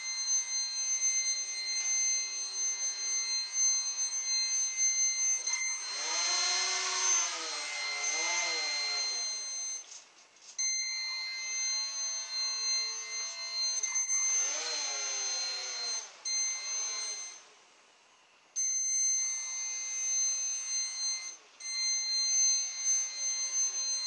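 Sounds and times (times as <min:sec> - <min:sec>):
small electric motor spinning: 0:00.0 - 0:09.6, 0:11.1 - 0:17.5
speed controller high whine: 0:00.0 - 0:09.9, 0:10.8 - 0:17.5.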